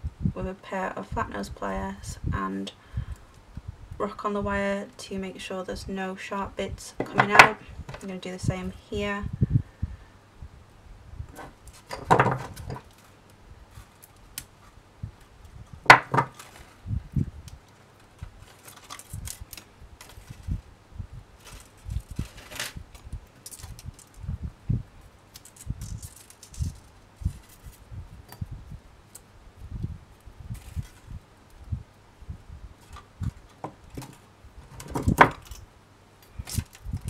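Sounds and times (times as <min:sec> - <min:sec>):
wire brushing and rubbing: 0:11.2 - 0:31.9.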